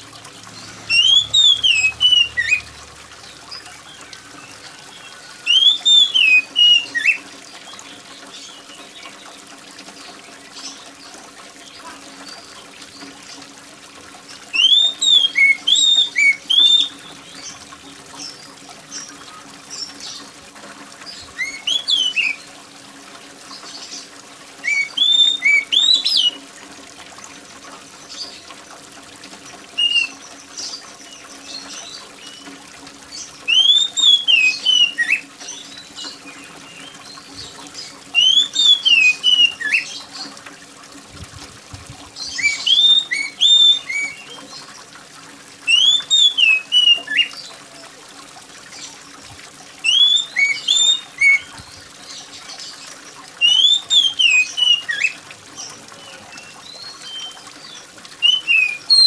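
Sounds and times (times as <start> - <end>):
steady water hiss: 0.0 - 59.0
bird singing whistled phrases: 0.9 - 2.7, 5.4 - 7.2, 14.6 - 17.1, 21.3 - 22.4, 24.6 - 26.4, 33.5 - 35.3, 38.1 - 40.1, 42.3 - 44.5, 45.7 - 47.5, 49.8 - 51.7, 53.4 - 55.2, 58.2 - 59.0.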